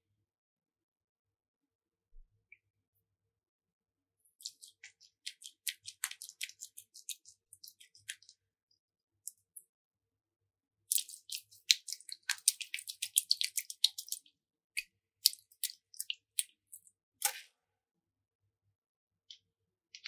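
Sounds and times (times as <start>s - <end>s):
slime squishing wet clicks: 4.4s - 8.4s, 10.9s - 17.5s.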